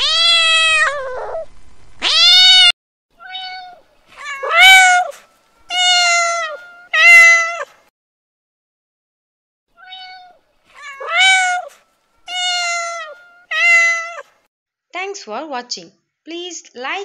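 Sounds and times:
cat meowing: 0.0s - 7.8s, 9.8s - 14.3s.

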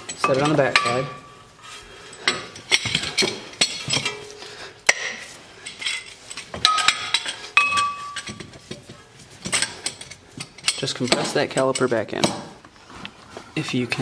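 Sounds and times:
metal clinks and knocks of clamp: 2.1s - 12.6s
short metallic ring: 6.7s - 8.4s.

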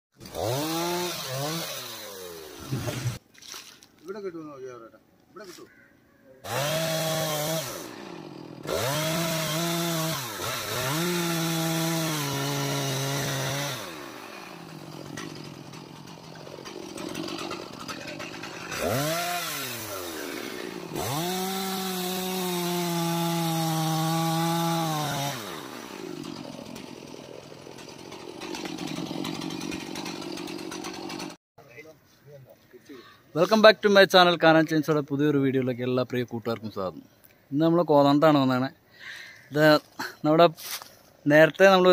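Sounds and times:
chainsaw revving and idling: 0.2s - 3.2s, 6.4s - 31.4s.

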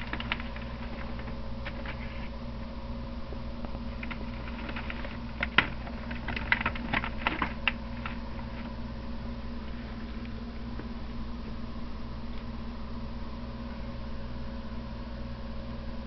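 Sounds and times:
crackling clicks: 0.0s - 2.2s, 3.6s - 8.7s
electrical hum: 0.0s - 16.0s.

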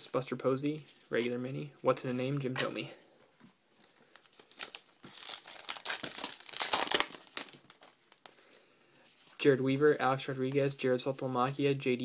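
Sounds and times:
wrapper tearing and crinkling: 4.1s - 8.3s.

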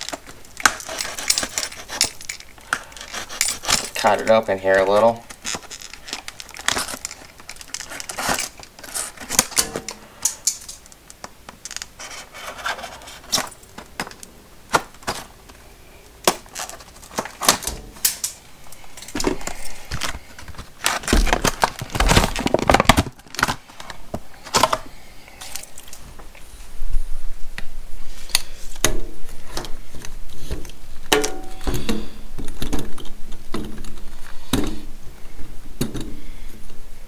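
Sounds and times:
plastic packaging crinkling: 0.0s - 26.2s.

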